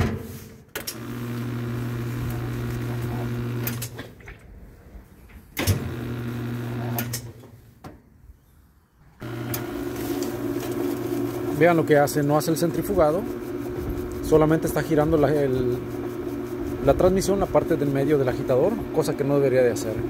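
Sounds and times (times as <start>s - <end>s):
washer motor humming: 0.9s - 4.0s, 5.8s - 7.2s, 9.2s - 20.0s.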